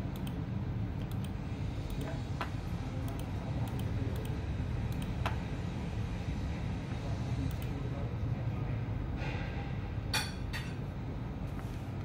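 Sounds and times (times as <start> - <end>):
steady low hum: 0.0 - 12.0
computer mouse clicking: 0.1 - 0.4, 1.0 - 5.4.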